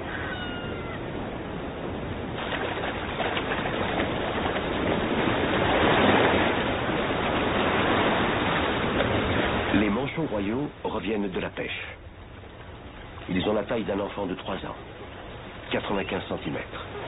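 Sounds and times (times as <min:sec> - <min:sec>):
albatross cries: 0:00.0 - 0:01.2
surf breaking on beach: 0:00.0 - 0:11.8.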